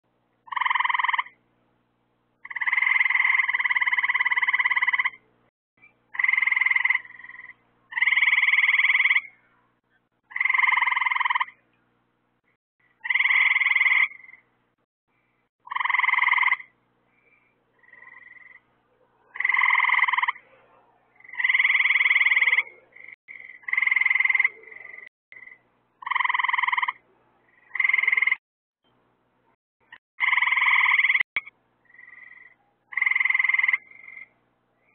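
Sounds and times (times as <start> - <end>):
frogs calling: 0.4 - 1.4, 2.4 - 5.2, 6.1 - 9.4, 10.3 - 11.6, 12.8 - 14.5, 15.6 - 18.7, 19.3 - 20.4, 21.1 - 28.4, 29.8 - 34.9.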